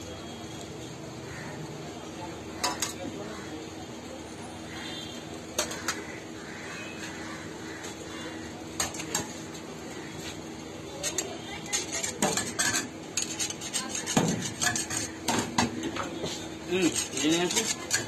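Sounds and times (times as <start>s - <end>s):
metal utensils clinking and scraping: 2.6s - 3.1s, 8.7s - 9.4s, 10.9s - 18.0s.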